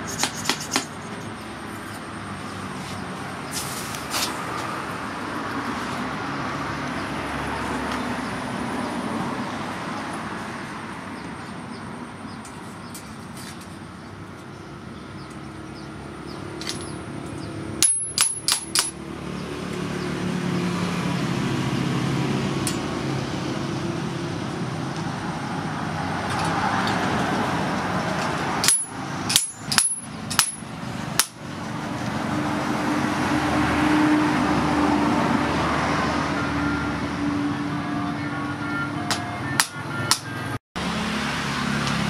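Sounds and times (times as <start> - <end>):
sharp ringing metal taps: 17.8 - 19.0, 28.6 - 31.4.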